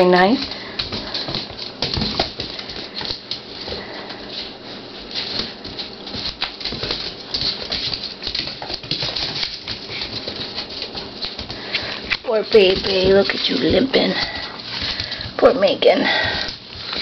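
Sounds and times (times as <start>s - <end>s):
puppies scuffling: 0.0s - 17.0s
puppy claws clicking on tiles: 5.2s - 15.4s.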